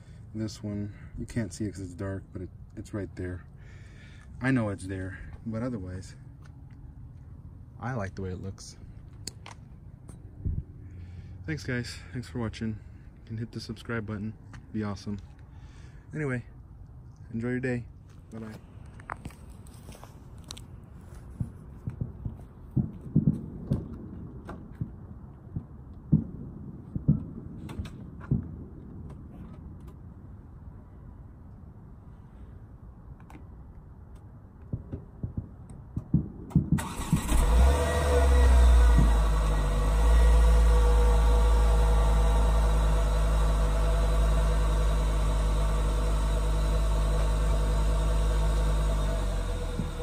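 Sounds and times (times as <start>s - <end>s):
car engine idling: 36.8s - 50.0s.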